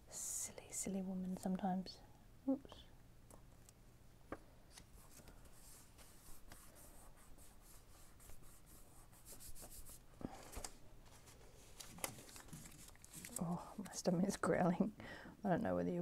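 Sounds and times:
paper rustling and rubbing: 4.7 - 13.6.

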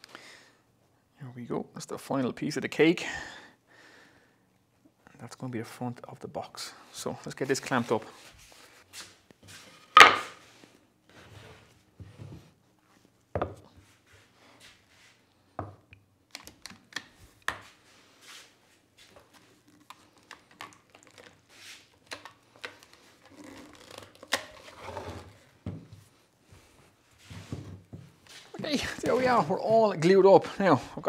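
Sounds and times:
wood knocking on workbench: 10.0 - 10.3.

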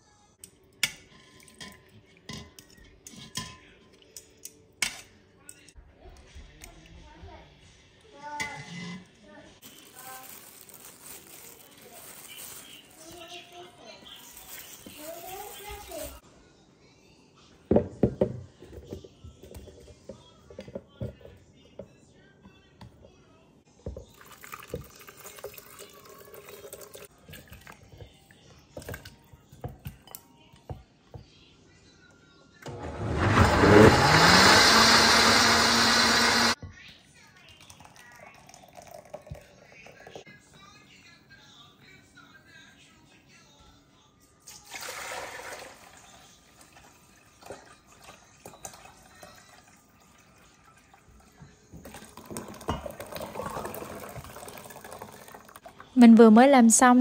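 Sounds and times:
liquid pouring into metal bowl: 24.0 - 28.0, 37.5 - 40.2, 44.4 - 55.9
broth pouring into blender jar: 37.9 - 39.5, 51.9 - 55.6.

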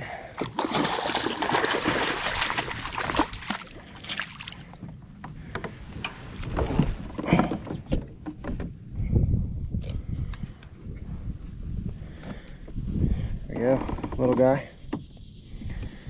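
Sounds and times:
fish splashing in a net: 0.4 - 4.7.

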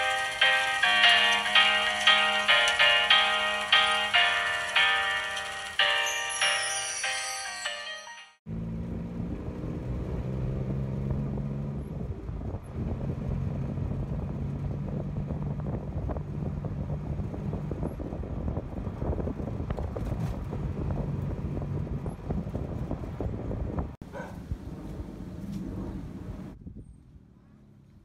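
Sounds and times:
tuk-tuk engine running: 0.0 - 6.3, 8.5 - 26.6
rattling cab: 0.0 - 7.4
wind noise: 10.6 - 27.5.

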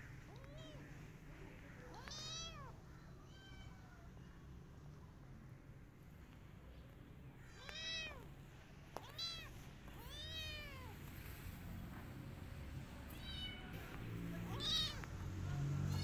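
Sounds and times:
kitten meowing: 1.9 - 3.8, 9.0 - 11.0, 13.1 - 13.7, 14.5 - 15.1.

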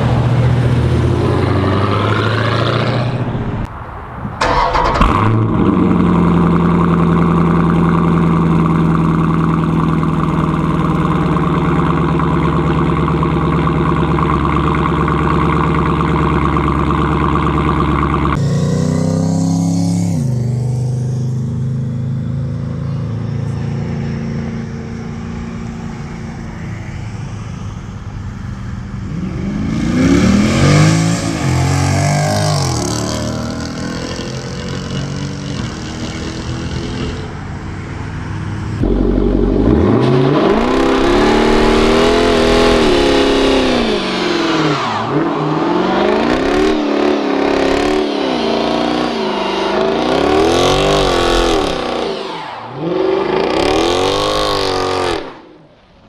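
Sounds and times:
car engine revving: 4.4 - 22.6, 29.1 - 55.8.

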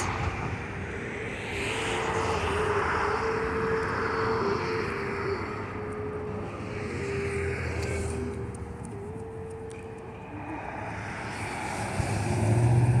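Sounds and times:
engine drone: 0.0 - 13.0
humming tone: 0.0 - 13.0.

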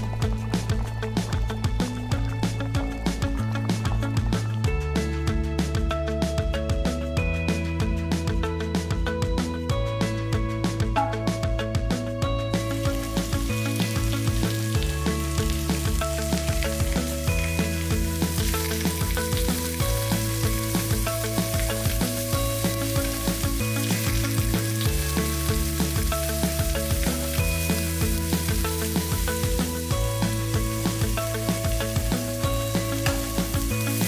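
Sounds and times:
background music with low chords: 0.0 - 34.0
squid sizzling in hot oil: 12.6 - 34.0.

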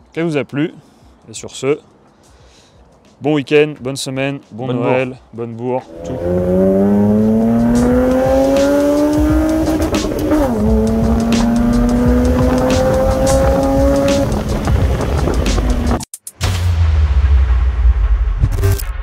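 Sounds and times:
car engine accelerating: 5.8 - 16.0.

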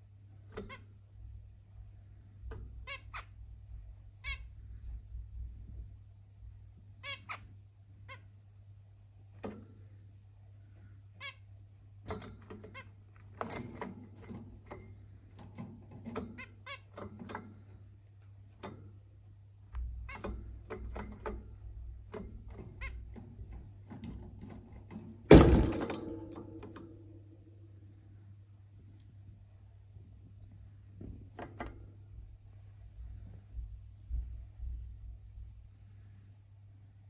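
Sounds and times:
loud ringing knock: 25.3 - 27.0.

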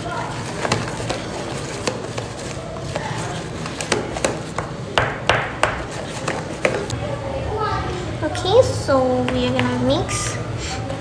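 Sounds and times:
pencil tapping bowl stirring slime: 0.0 - 6.9, 9.2 - 9.9.

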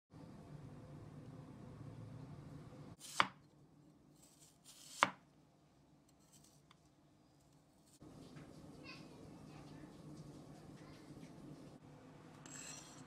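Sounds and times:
knife chopping on wooden board: 3.0 - 3.4, 4.7 - 5.2.

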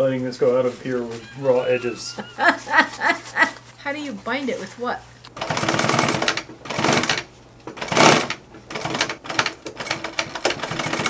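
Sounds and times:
sewing machine stitching: 5.4 - 11.0.

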